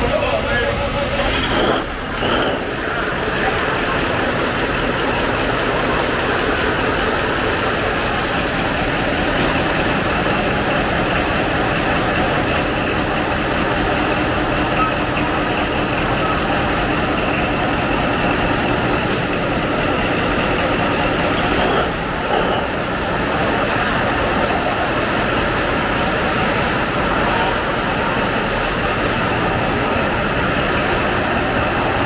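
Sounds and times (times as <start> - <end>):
marine diesel engine droning: 0.0 - 32.0.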